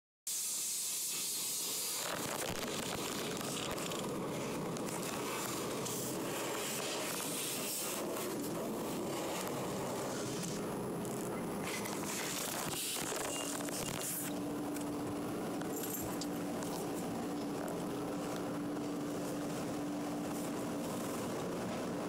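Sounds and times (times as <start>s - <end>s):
water spray hissing on car: 0.3s - 11.0s, 11.6s - 13.0s.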